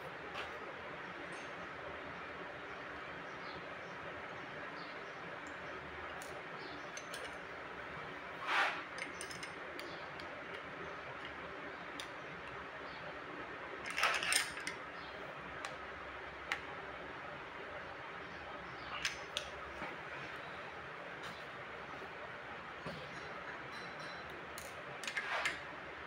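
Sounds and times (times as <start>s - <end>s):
brief scraping sounds: 8.4s - 8.9s.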